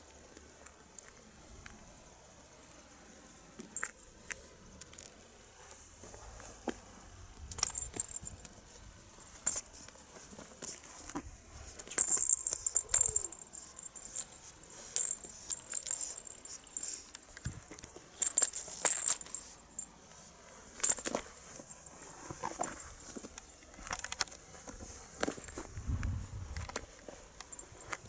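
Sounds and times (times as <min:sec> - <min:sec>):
wand toy jingling: 0:07.5 - 0:08.5, 0:11.7 - 0:17.2, 0:18.2 - 0:19.8.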